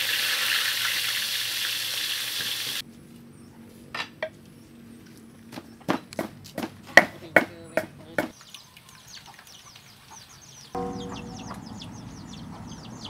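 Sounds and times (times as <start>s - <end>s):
fish sizzling in hot oil: 0.0s - 2.8s.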